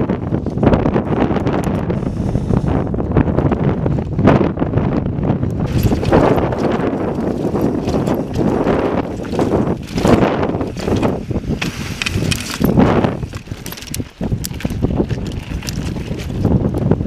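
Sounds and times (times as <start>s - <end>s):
wind gusting on microphone: 0.0s - 17.0s
bike tyres rattling over rock: 5.5s - 17.0s.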